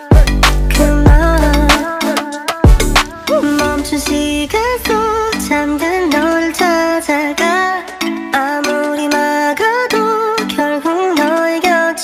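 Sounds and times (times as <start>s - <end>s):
deep bass: 0.2s - 1.8s, 2.7s - 8.0s
drum hits: 2.6s - 8.2s
gliding melody: 2.8s - 9.4s.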